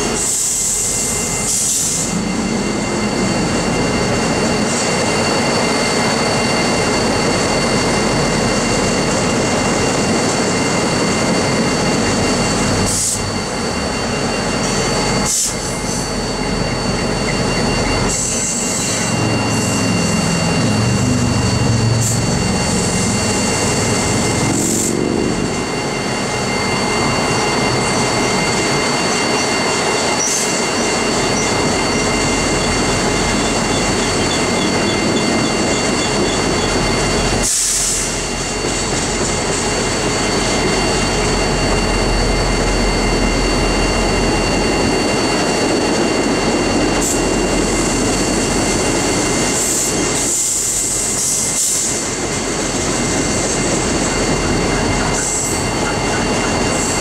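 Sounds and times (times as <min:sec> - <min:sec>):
steel wheels rumbling on rail: 0:00.0 - 0:57.0
high-pitched wheel squeal: 0:14.2 - 0:42.0.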